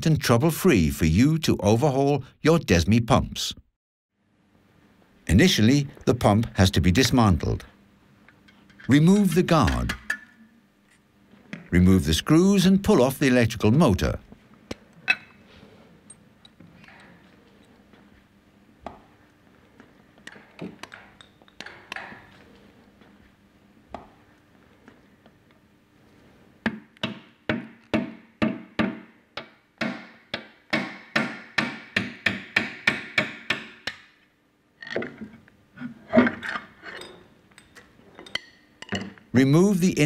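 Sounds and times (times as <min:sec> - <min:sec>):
tools knocking and clinking: 0:08.5 - 0:10.4, 0:20.2 - 0:22.4, 0:34.8 - 0:35.3, 0:36.1 - 0:39.2.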